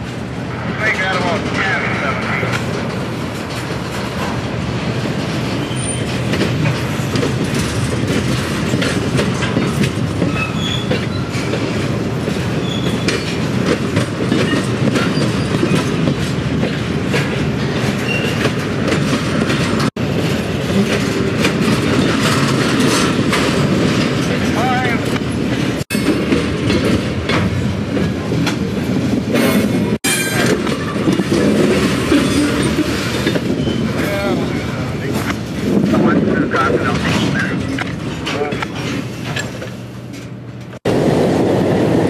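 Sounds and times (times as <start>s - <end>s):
train wheels rumbling over rail joints: 0.0s - 42.0s
high wheel squeals: 5.5s - 6.2s, 10.3s - 11.5s.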